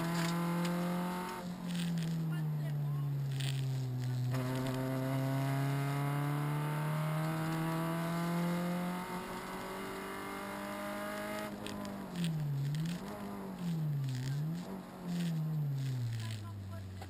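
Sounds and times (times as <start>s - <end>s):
rally car engine revving: 0.0s - 17.0s.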